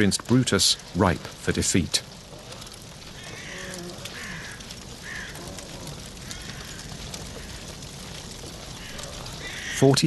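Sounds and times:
rain pattering: 0:00.0 - 0:10.0
crows cawing: 0:02.5 - 0:10.0.

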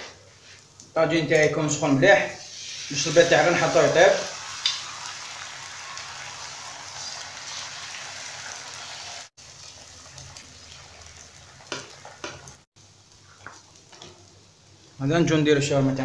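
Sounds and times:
egg sizzling on a griddle: 0:02.4 - 0:15.0.

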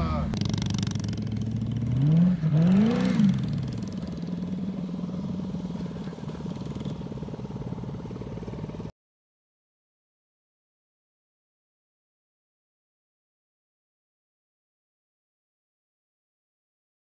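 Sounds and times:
car engine revving: 0:00.0 - 0:08.9.

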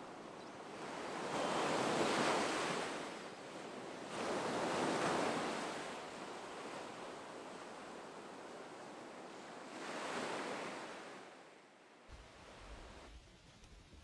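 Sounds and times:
waves washing onto shore: 0:00.7 - 0:11.4.

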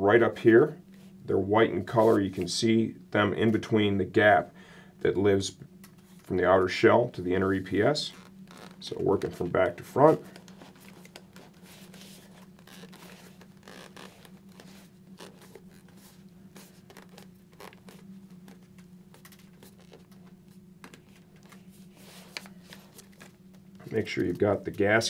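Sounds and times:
steady low hum: 0:00.0 - 0:25.0
fabric scratching and rustling: 0:08.1 - 0:09.4, 0:10.0 - 0:24.6.

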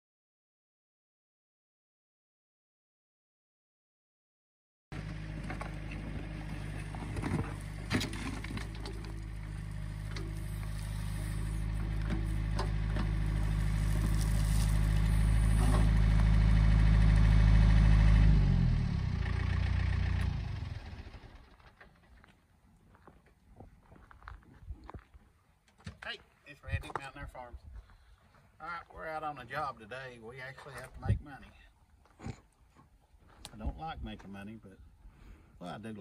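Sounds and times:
diesel engine under load: 0:04.9 - 0:22.3
bucket knocking and scraping dirt: 0:05.0 - 0:16.2.

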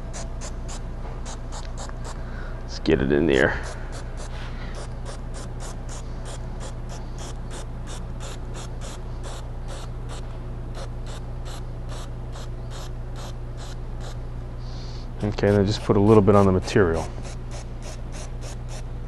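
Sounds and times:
steady low hum: 0:00.0 - 0:19.0
aerosol can spraying: 0:03.6 - 0:10.2.

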